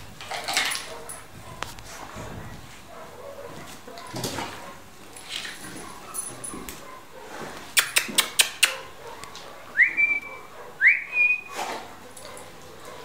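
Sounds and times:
person whistling: 9.8s - 11.5s.

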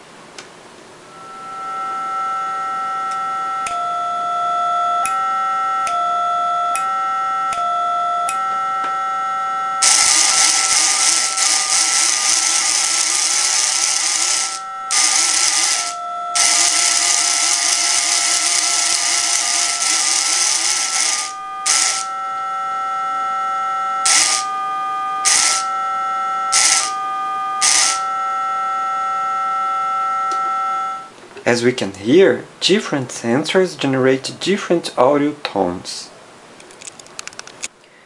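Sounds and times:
two-note tones from small speaker: 1.1s - 31.1s
loud hiss: 9.8s - 22.2s, 24.0s - 24.5s, 25.2s - 25.7s, 26.5s - 27.0s, 27.6s - 28.1s.

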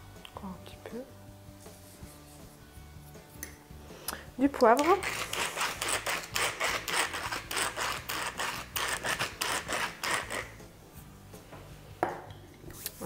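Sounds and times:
pepper mill grinding: 4.5s - 10.6s.

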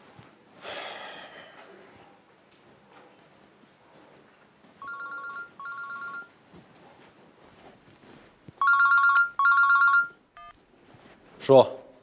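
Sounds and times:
mobile phone ringing: 4.8s - 6.3s, 8.6s - 10.6s.

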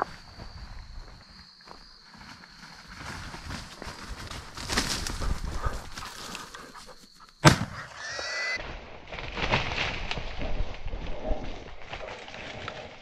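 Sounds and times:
footsteps through grass: 0.0s - 7.1s.

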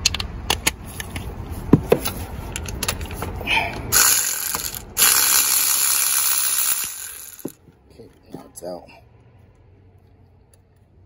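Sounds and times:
ratchet wrench clicking: 3.9s - 7.6s.

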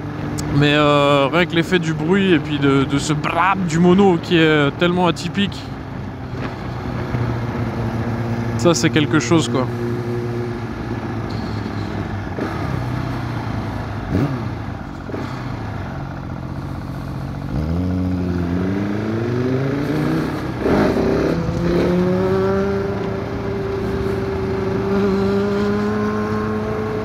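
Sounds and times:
motorcycle engine revving: 5.7s - 27.0s.

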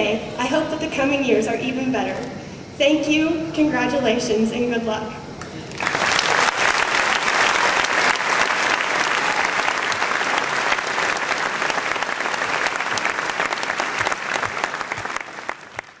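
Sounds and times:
audience applauding: 5.4s - 16.0s.

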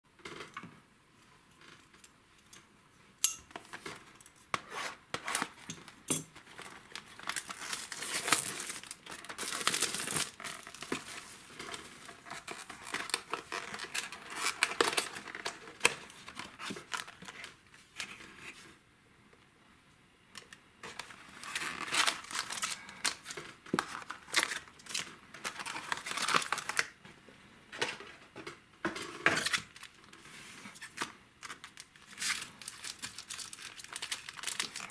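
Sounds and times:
shrink wrap crinkling and tearing: 5.2s - 17.6s, 20.8s - 27.0s, 29.4s - 34.9s
foil packs rustling: 6.4s - 17.5s, 20.9s - 26.9s, 30.8s - 34.9s.

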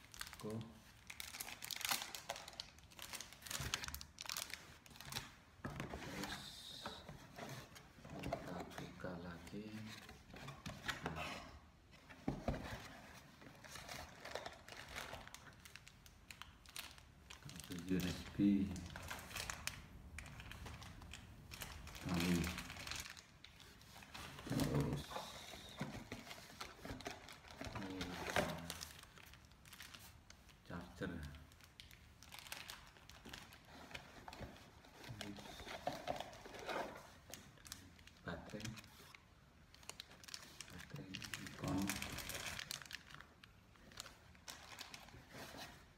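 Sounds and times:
plastic bag crinkling: 14.0s - 25.8s, 26.4s - 33.8s, 36.2s - 45.2s.

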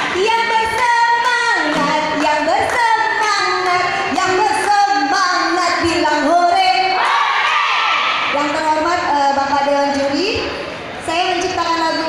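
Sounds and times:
high voice singing: 1.6s - 2.6s.

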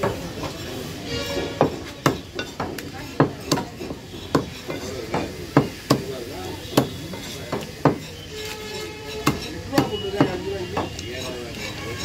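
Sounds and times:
knife chopping on wooden block: 6.8s - 8.1s, 9.2s - 11.0s.

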